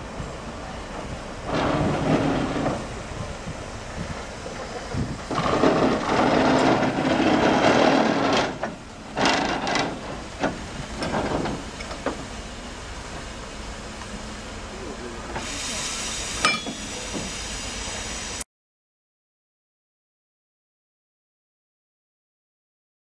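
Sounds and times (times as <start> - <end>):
steam locomotive bursts: 0.0 - 13.6, 14.3 - 18.4.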